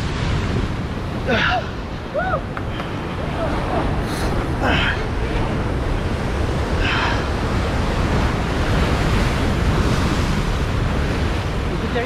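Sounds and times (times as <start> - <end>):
ocean surf breaking on rocks: 0.0 - 12.0
wind buffeting the microphone: 0.0 - 12.0.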